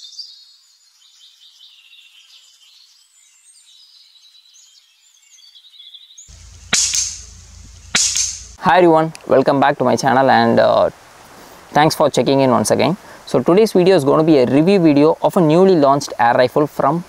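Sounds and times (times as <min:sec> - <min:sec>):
birds chirping: 0:06.3 - 0:08.6
sharp gunshot crack: 0:06.3 - 0:08.6.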